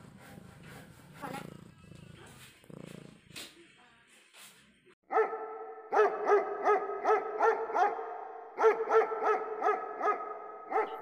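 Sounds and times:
dog barking: 5.1 - 11.0.

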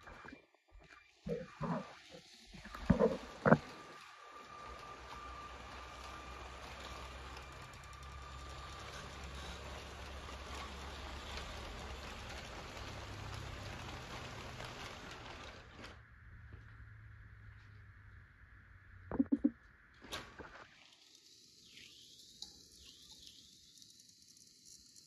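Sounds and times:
toy train rattling on plastic track: 1.8 - 16.0, 20.8 - 25.0.

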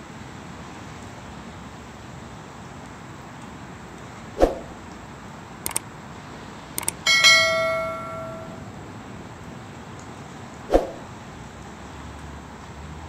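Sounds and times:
mouse clicks: 6.8 - 7.0
notification bell ding: 6.8 - 8.7.

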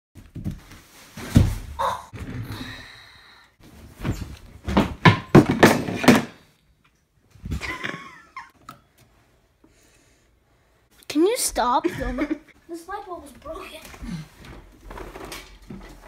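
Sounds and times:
heavy thumps and bangs: 4.6 - 6.4.

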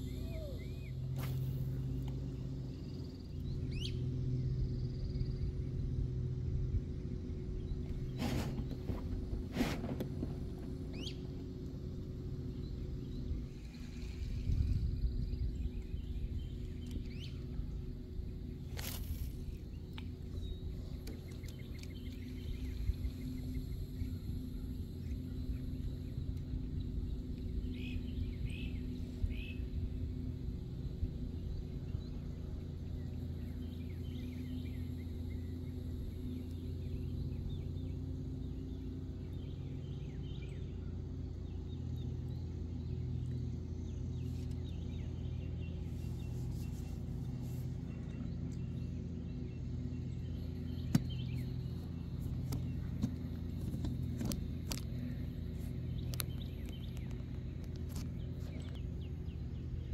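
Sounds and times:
bird chirps: 0.0 - 5.5, 10.8 - 11.5
faint low hum: 0.0 - 59.9
low rumble: 0.0 - 59.9.

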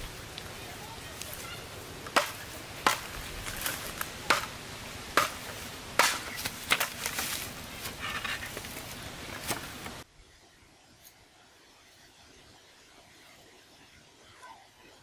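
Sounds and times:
bamboo splitting: 2.0 - 10.0.

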